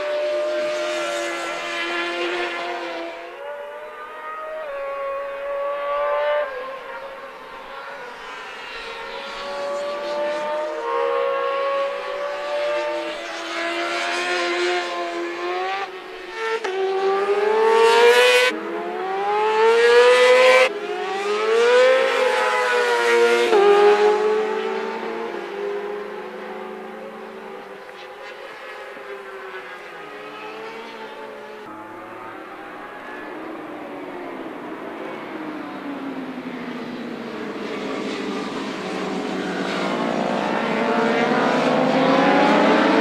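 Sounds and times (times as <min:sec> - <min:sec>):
racing motorcycle engines revving: 0:00.0 - 0:43.0.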